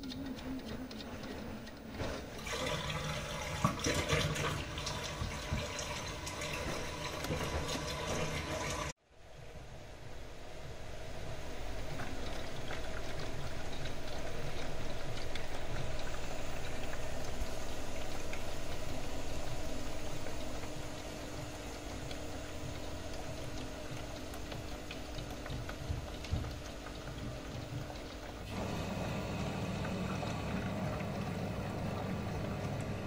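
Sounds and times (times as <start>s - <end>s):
toy washing machine hum: 0.0s - 9.0s, 11.1s - 33.0s
water splashing in toy washing machine: 0.0s - 9.0s, 21.6s - 33.0s.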